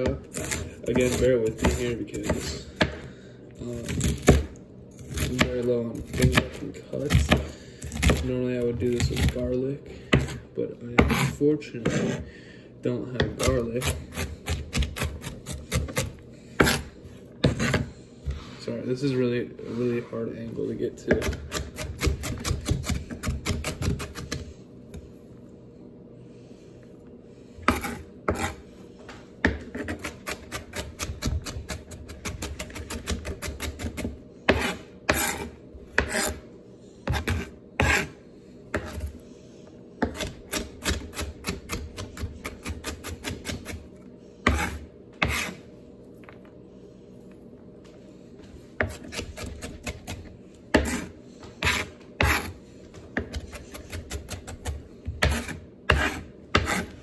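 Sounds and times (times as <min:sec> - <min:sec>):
knife chopping on cutting board: 0:00.0 - 0:03.1, 0:03.8 - 0:08.3, 0:10.1 - 0:12.2, 0:13.2 - 0:17.9, 0:21.0 - 0:24.5, 0:27.6 - 0:28.6, 0:29.4 - 0:36.4, 0:37.0 - 0:39.1, 0:40.0 - 0:43.8, 0:44.4 - 0:45.6, 0:48.8 - 0:57.0.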